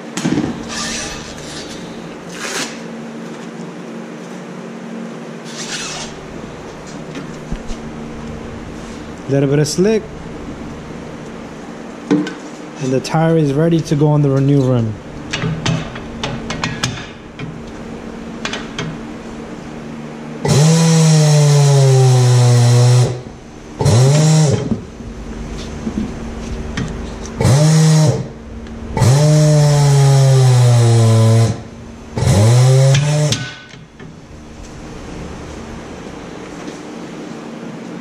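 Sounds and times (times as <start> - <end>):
turntable motor humming: 5.6 - 36.8.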